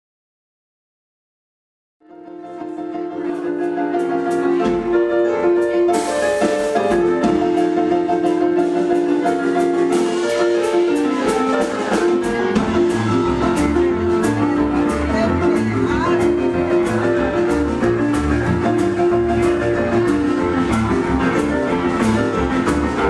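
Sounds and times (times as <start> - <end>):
boogie-woogie piano band: 2.0 - 23.0
low bass notes: 11.9 - 23.0.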